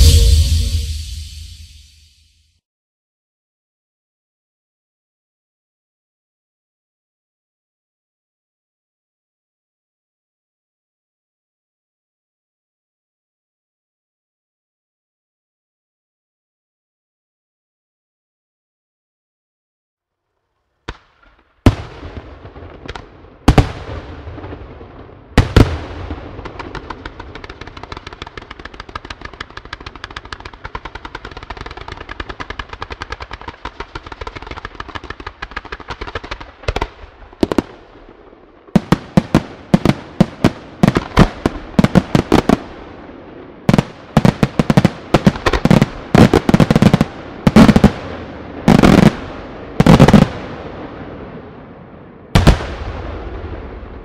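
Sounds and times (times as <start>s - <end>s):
fireworks crackling: 0.0s - 1.9s, 25.4s - 43.1s, 43.7s - 50.7s
fireworks bangs: 0.0s - 2.0s, 20.9s - 51.5s, 52.3s - 54.0s
aerial firework bursts: 0.0s - 2.2s.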